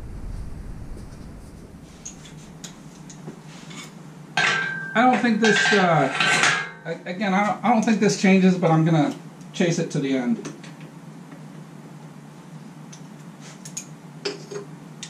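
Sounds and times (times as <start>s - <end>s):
man talking: 6.9s - 10.4s.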